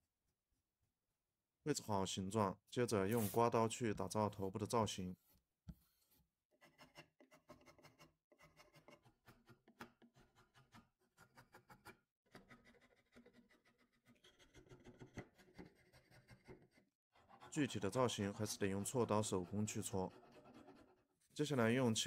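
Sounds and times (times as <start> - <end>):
hand file rasping on wood: 6.6 - 21.1.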